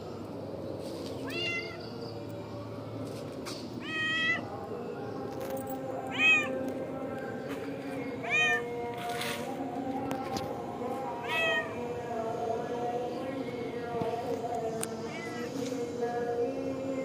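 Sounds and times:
cat meowing: 0:01.3 - 0:01.8, 0:03.8 - 0:04.4, 0:06.1 - 0:06.5, 0:11.2 - 0:11.7.

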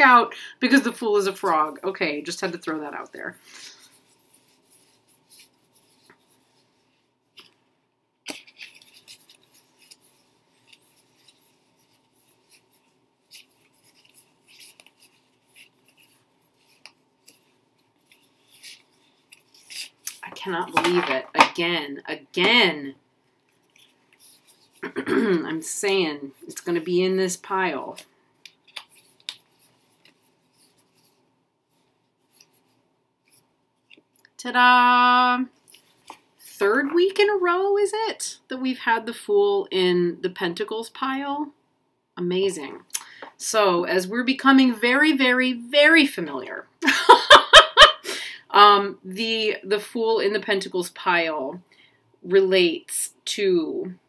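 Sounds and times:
cards being shuffled: 0:07.3 - 0:07.6, 0:08.2 - 0:21.6, 0:23.5 - 0:24.9, 0:27.5 - 0:34.1, 0:35.6 - 0:36.3
cards clicking and rustling: 0:08.3 - 0:11.8, 0:28.0 - 0:31.0.

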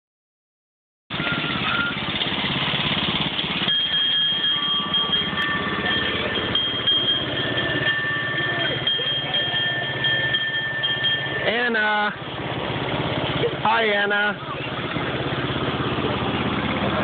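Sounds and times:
small train engine rumbling: 0:01.1 - 0:17.0
steady high tones: 0:03.4 - 0:12.2.

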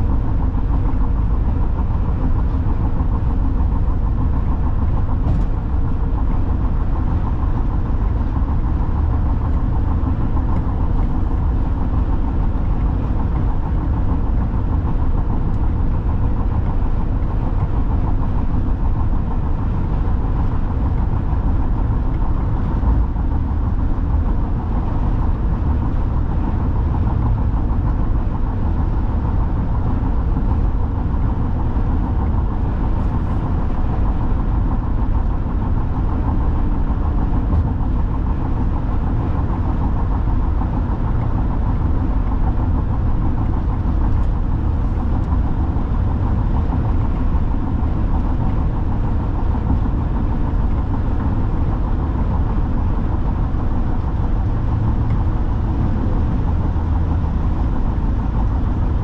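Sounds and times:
car road noise inside cabin: 0:00.0 - 0:59.0.

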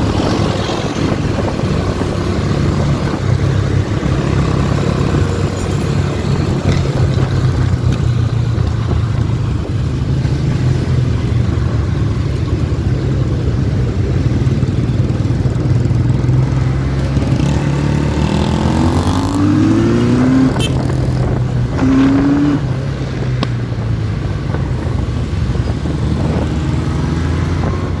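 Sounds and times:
motorcycle engine running: 0:00.0 - 0:19.4
wind noise on microphone: 0:00.0 - 0:28.0.

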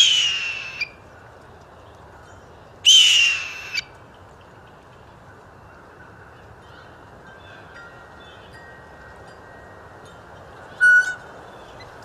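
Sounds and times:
blue jay raspy call: 0:00.0 - 0:00.9, 0:02.8 - 0:03.9.

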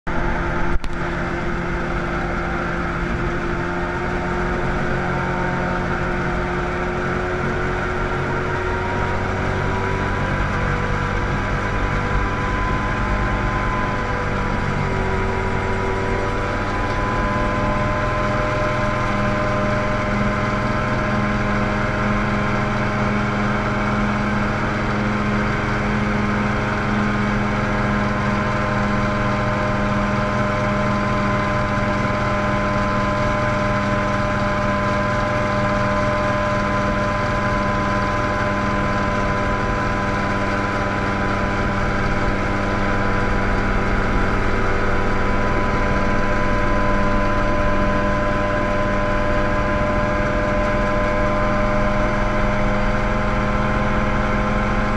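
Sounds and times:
helicopter engine and rotor: 0:00.1 - 0:54.9.

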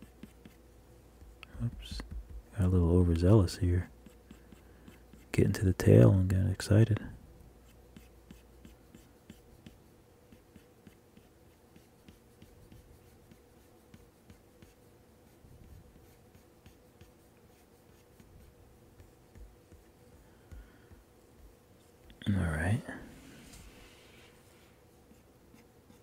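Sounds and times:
stylus tapping and scratching screen: 0:00.0 - 0:02.6, 0:07.6 - 0:22.4
faint steady hum: 0:00.0 - 0:26.0.

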